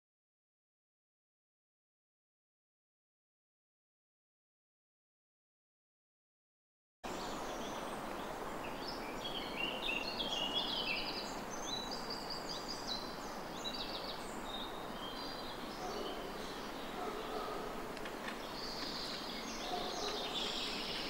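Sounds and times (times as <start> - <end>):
steady background hiss: 7.0 - 21.0
birds singing: 7.1 - 21.0.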